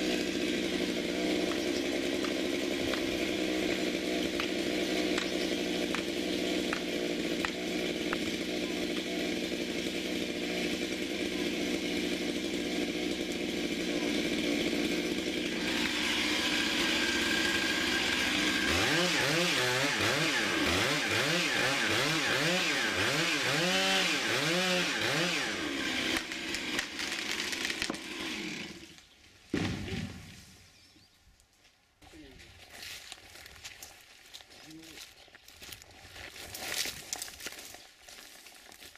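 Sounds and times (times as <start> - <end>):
chainsaw cutting wood: 0.0 - 30.7, 35.5 - 38.9
tree trunk falling thud: 29.5 - 30.4.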